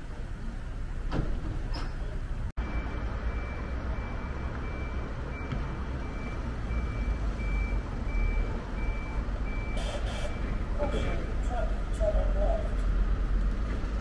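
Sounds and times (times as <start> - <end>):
low street rumble: 0.0 - 14.0
reversing alarm beeping: 2.6 - 11.1.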